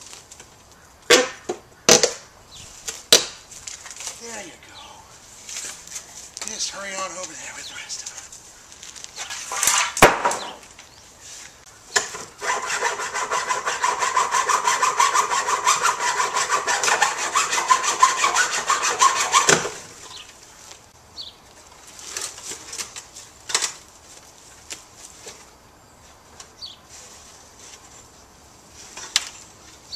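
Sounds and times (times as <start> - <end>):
hacksaw cutting wood: 12.0 - 19.8.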